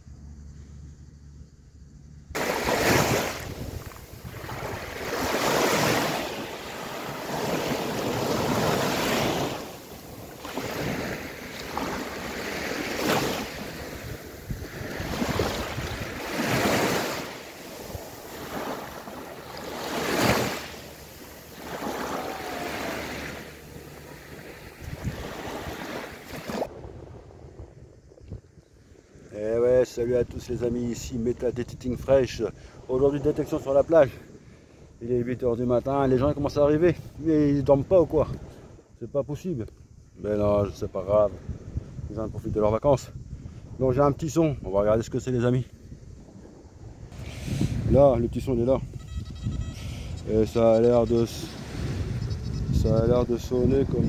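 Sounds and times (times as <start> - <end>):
waves washing up a sandy beach: 2.4 - 27.2.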